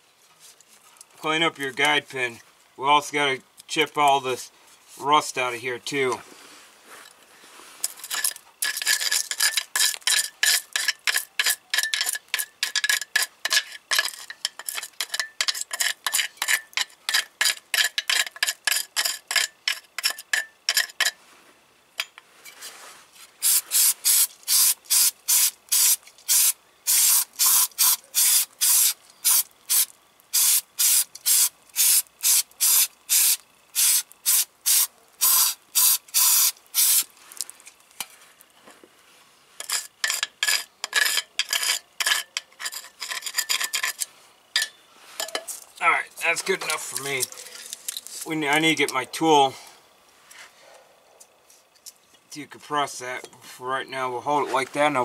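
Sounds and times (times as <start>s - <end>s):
metal rasping on metal: 8.1s - 21.2s, 39.6s - 44.1s.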